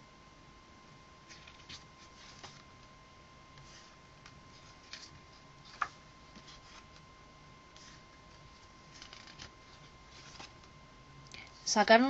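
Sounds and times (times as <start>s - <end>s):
paper pages turning: 1.3s - 2.7s, 3.6s - 7.0s, 7.7s - 10.7s.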